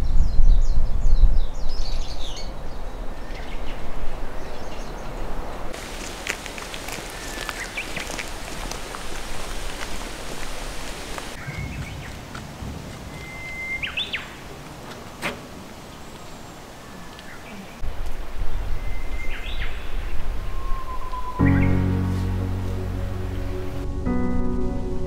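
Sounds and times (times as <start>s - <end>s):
small birds chirping: 0.0s - 12.3s, 12.9s - 14.7s, 15.7s - 17.9s, 18.5s - 23.8s
wind buffeting microphone: 0.0s - 14.6s, 17.8s - 21.9s
steady rustling hiss: 5.6s - 13.2s.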